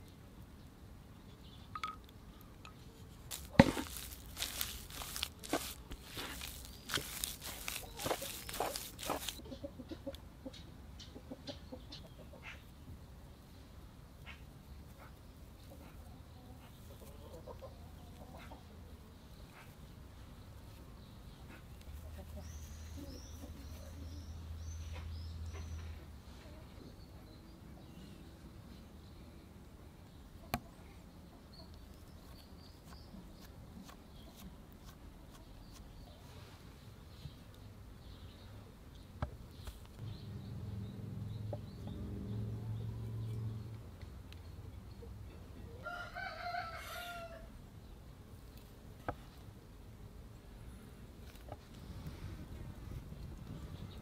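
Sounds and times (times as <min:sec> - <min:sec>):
blade mashing potato in bowl: 0:03.3 - 0:09.4.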